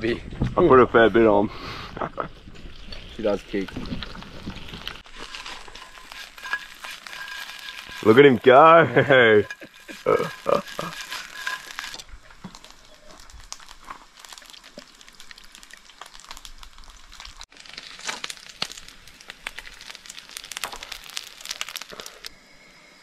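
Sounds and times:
fish frying in spitting oil: 2.7s - 22.3s.

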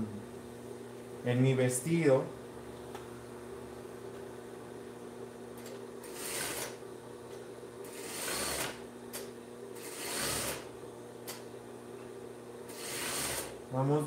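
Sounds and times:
faint steady hum: 0.0s - 14.0s
sewing machine stitching: 6.0s - 6.8s, 7.9s - 8.8s, 9.8s - 10.7s, 12.7s - 13.6s.

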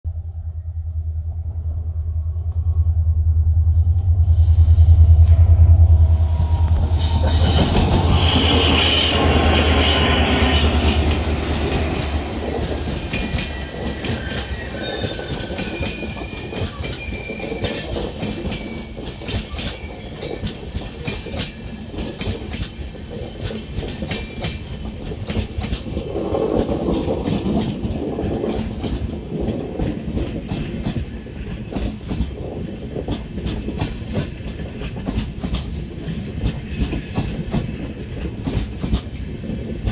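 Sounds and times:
diesel locomotive engine drone: 0.0s - 17.1s
train wheels clattering over rail joints: 6.5s - 39.9s.

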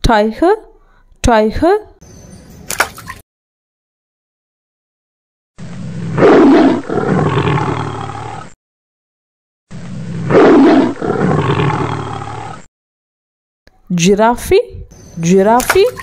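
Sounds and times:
tiger roaring: 5.6s - 8.6s, 9.7s - 12.7s.

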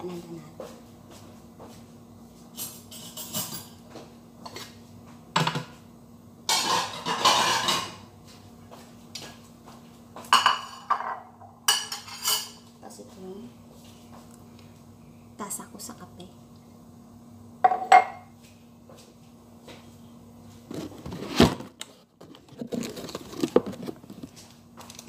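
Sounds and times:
dishes and cutlery clinking: 2.5s - 4.7s, 6.5s - 8.1s, 10.2s - 12.7s.

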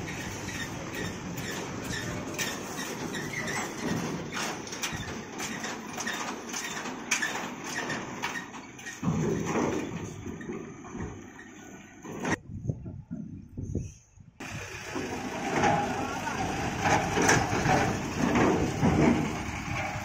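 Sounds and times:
wheels clanking over steel plates: 0.0s - 12.4s, 14.4s - 20.0s
diesel truck engine under load: 0.0s - 13.1s, 14.4s - 20.0s.

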